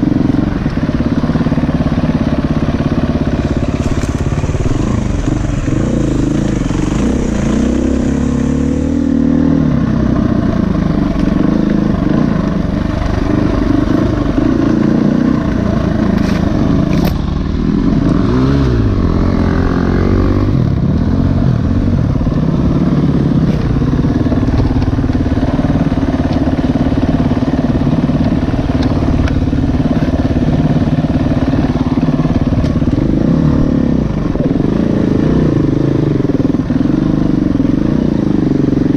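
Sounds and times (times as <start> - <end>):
dirt bike engine running: 0.0 - 38.9.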